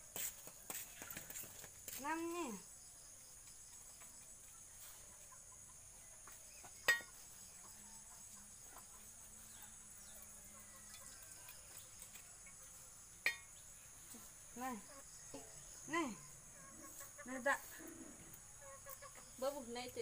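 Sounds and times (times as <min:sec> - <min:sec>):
crickets chirring: 0:01.2 - 0:20.0
metal utensils clinking: 0:06.9 - 0:07.1.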